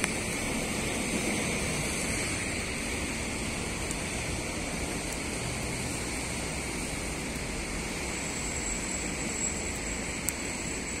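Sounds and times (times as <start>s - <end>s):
faint high whine: 0.0s - 11.0s
heavy rain hissing: 0.0s - 11.0s.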